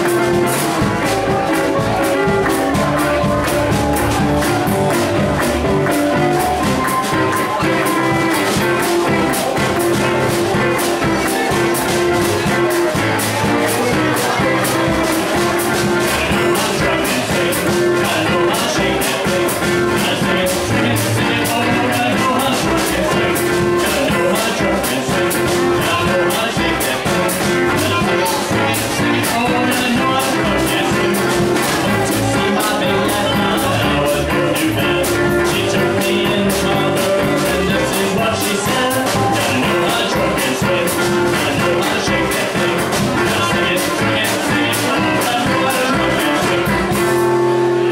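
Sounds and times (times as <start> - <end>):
clarinet playing lead: 0.0 - 16.3
plucked upright bass: 0.0 - 47.9
steady drum beat: 0.0 - 47.9
strummed acoustic guitar: 0.0 - 47.9.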